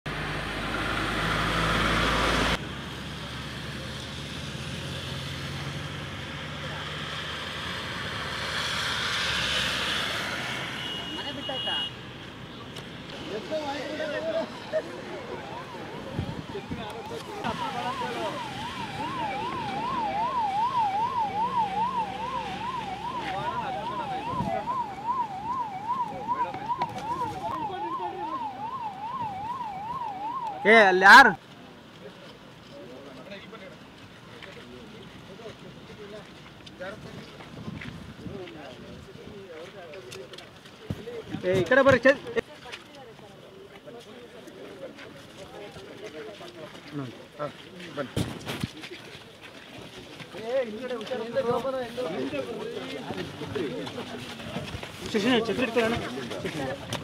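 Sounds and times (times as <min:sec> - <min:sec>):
car passing: 0:00.1 - 0:31.3
steady traffic noise: 0:00.1 - 0:57.0
electronic siren in fast yelp: 0:15.2 - 0:31.0.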